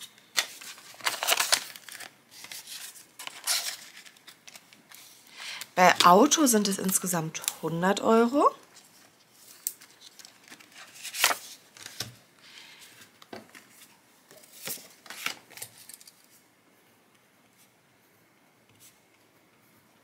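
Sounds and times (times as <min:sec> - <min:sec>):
plastic envelopes rustling: 0:00.0 - 0:07.6, 0:08.7 - 0:16.4.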